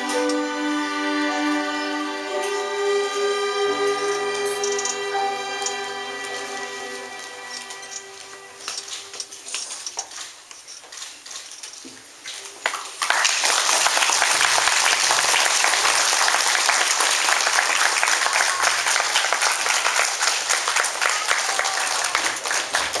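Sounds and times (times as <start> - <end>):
audience applauding: 12.6 - 23.0.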